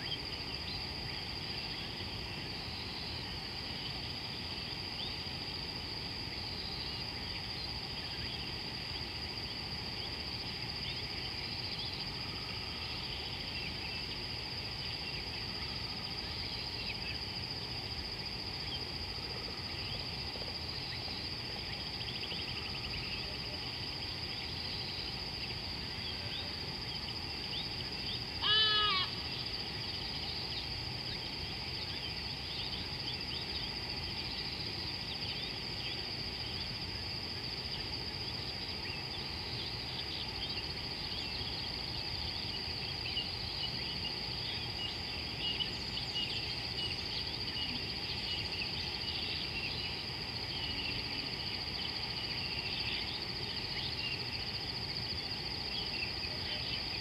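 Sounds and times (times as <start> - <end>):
high insect drone: 0.0 - 57.0
loud animal call: 28.4 - 29.3.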